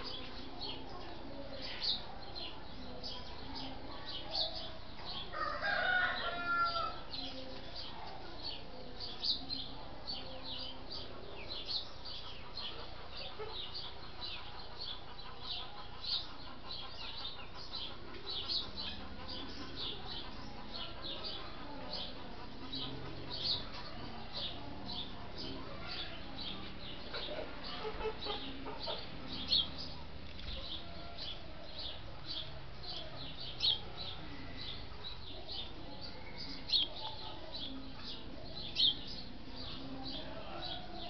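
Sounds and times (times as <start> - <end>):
small birds chirping: 0.0 - 41.0
rooster crowing: 5.3 - 7.0.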